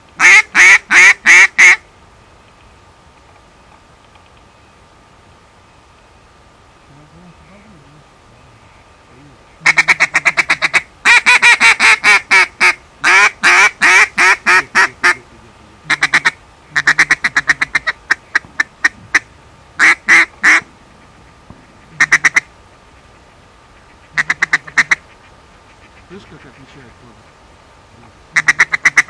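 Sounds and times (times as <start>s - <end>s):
duck call quacking: 0.2s - 1.8s, 9.6s - 15.2s, 15.9s - 20.7s, 21.9s - 22.5s, 23.8s - 26.8s, 28.3s - 29.0s.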